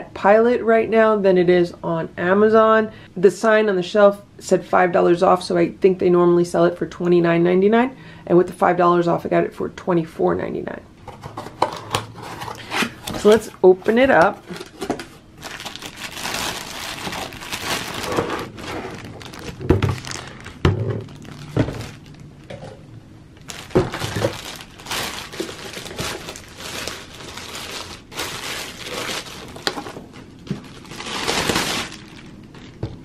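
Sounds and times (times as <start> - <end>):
plastic bag crinkling: 12.5 - 22.8, 23.4 - 33.0.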